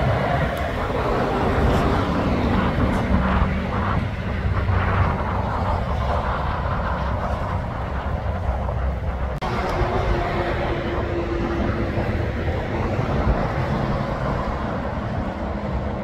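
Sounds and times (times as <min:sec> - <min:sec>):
truck diesel rumble: 0:00.0 - 0:16.0.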